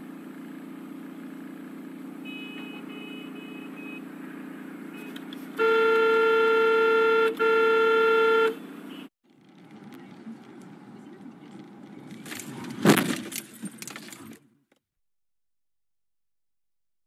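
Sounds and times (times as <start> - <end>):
car horn blasts: 2.2 - 4.1, 4.9 - 9.1
car cabin drone: 8.3 - 13.4.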